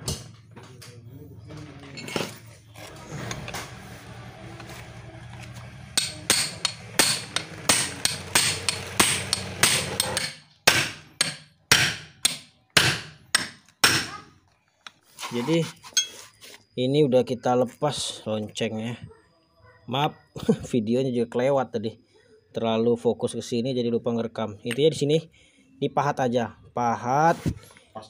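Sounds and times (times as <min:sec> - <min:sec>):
steady low hum: 0:00.0 - 0:13.6
hammer striking chisel on metal: 0:05.3 - 0:14.2.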